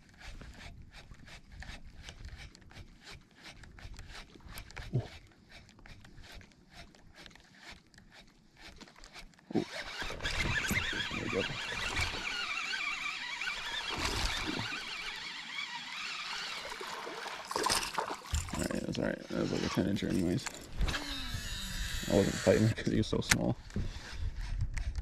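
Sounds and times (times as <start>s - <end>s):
fishing reel cranking: 0.0s - 23.2s
water splashing: 8.8s - 20.3s.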